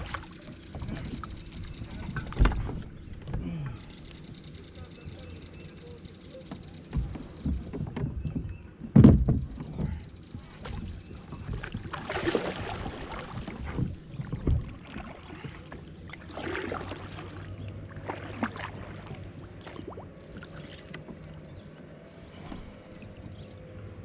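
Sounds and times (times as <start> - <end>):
paddle splashing in water: 0.0 - 2.9, 10.4 - 21.6.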